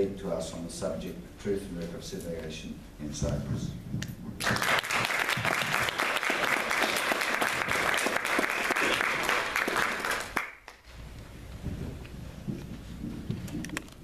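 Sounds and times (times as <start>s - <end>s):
audience applauding: 4.4s - 10.8s.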